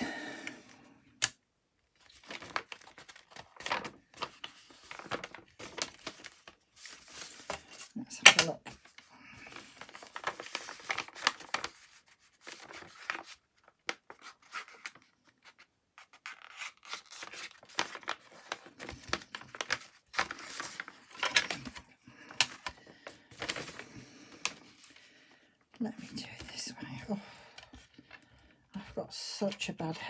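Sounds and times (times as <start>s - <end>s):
paper rustling: 2.0s - 25.1s.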